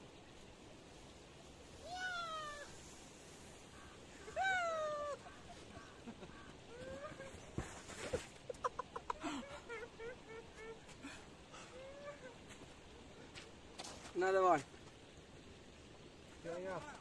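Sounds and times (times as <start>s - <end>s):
man whooping: 4.2s - 5.3s.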